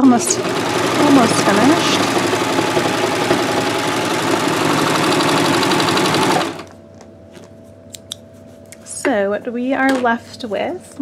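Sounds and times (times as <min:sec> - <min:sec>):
overlock sewing machine running: 0:00.0 - 0:06.7.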